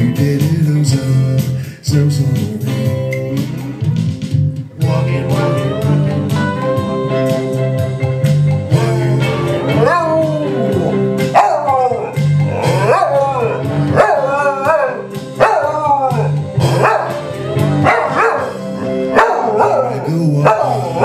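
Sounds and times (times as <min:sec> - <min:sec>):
recorded guitar song: 0:00.0 - 0:21.0
dog howling: 0:09.7 - 0:21.0.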